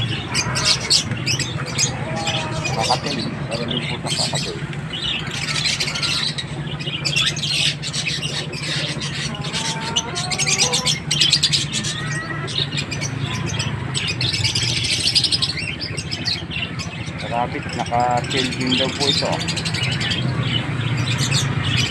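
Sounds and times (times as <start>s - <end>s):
parakeets chirping and chattering: 0.0s - 21.9s
steady low hum: 0.0s - 21.9s.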